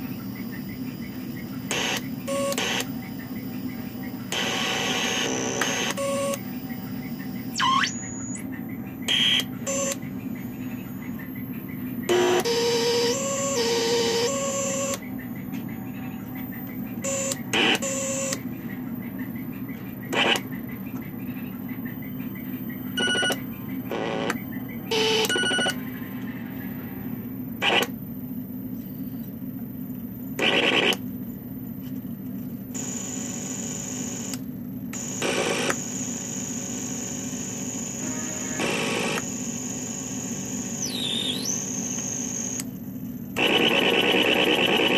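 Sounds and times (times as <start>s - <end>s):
low buzzing synth drone: 0.0s - 21.8s, 36.6s - 44.9s
synth noise bursts and beeps: 0.4s - 10.0s, 21.9s - 26.8s, 40.7s - 42.6s, 43.4s - 44.9s.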